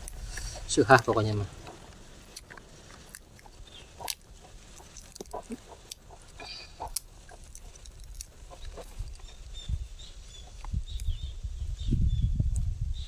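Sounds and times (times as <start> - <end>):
pod shells cracking: 0.0 - 9.6.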